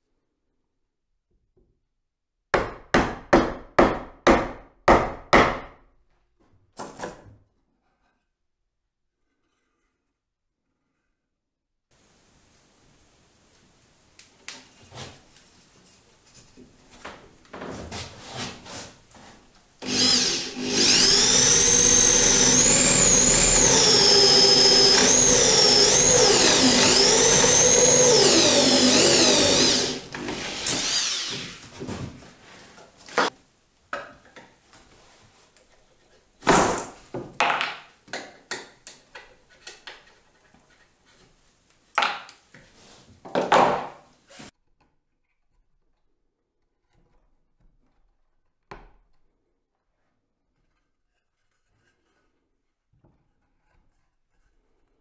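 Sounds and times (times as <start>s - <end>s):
electric drill boring wood: 19.8s - 31.7s.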